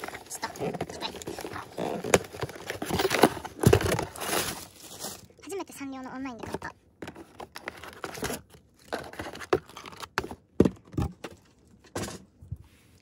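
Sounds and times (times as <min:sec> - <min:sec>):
packaging rustling and crinkling: 0:00.0 - 0:05.4, 0:06.4 - 0:10.8.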